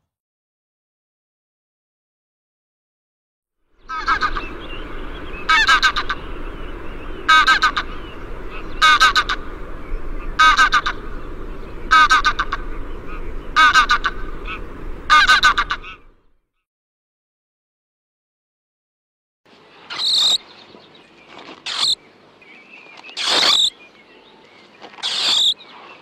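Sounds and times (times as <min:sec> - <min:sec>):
steady background hiss: 0:03.8 - 0:16.1, 0:19.5 - 0:26.0.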